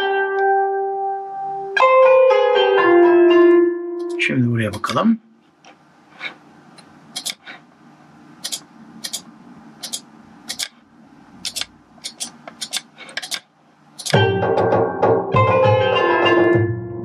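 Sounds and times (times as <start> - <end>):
software playing melody: 0.0 - 4.3, 14.2 - 17.0
computer mouse clicks: 7.2 - 7.5, 8.4 - 10.8, 11.4 - 13.4.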